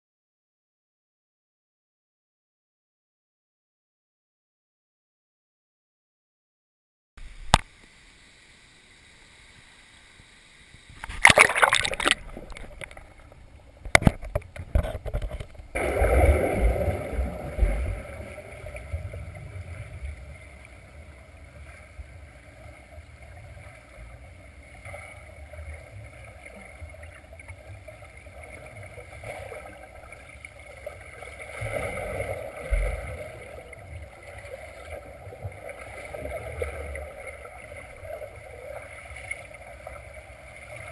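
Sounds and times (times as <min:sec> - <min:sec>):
muffled underwater water churning: 0:10.7 - 0:40.9.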